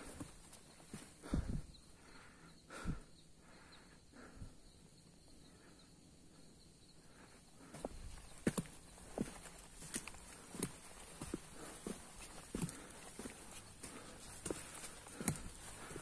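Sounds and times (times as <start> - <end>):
footsteps on trail: 0.0 - 1.6, 7.6 - 16.0.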